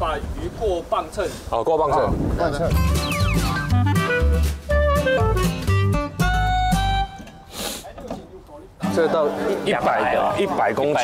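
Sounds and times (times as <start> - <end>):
bass line: 2.7 - 7.0
plucked guitar notes: 2.7 - 7.4.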